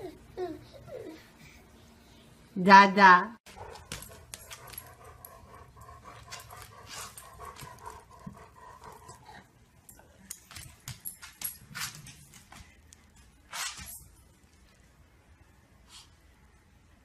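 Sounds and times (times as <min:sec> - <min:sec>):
dog panting: 0:03.6 - 0:09.6.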